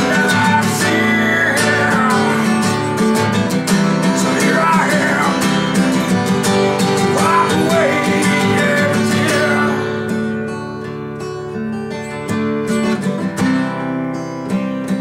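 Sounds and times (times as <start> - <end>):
man singing: 0.0 - 10.3
acoustic guitar strumming: 0.0 - 15.0.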